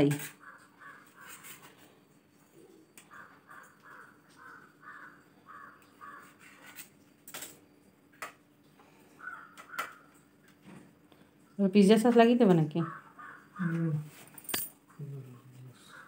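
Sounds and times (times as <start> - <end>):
crow cawing: 0.4 - 1.4, 3.0 - 6.6, 9.1 - 10.2, 12.8 - 13.8, 15.8 - 16.0
sharp metal clinks: 14.4 - 14.8.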